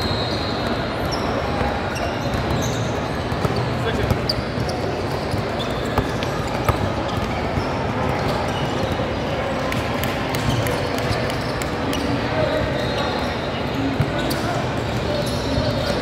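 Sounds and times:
basketball bouncing on court: 0:01.0 - 0:11.5.

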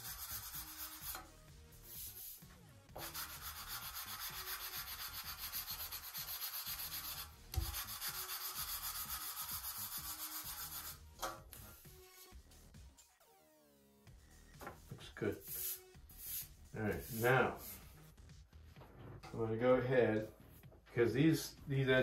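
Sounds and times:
sandpaper rubbing on wood: 0:00.0 - 0:11.0, 0:15.3 - 0:18.0
sanding block thump: 0:07.6 - 0:08.5.

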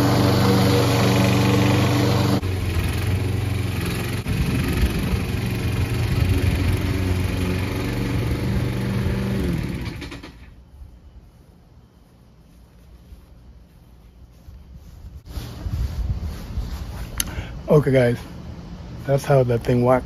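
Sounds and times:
engine shutting off and winding down: 0:00.0 - 0:10.5
lawn mower engine running: 0:00.0 - 0:10.6.

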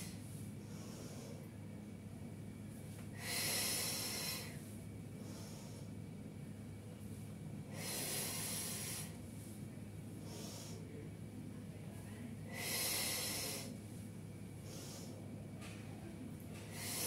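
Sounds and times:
woman breathing heavily: 0:00.0 - 0:01.7, 0:03.0 - 0:06.2, 0:07.6 - 0:11.0, 0:12.4 - 0:15.5, 0:16.6 - 0:17.0.

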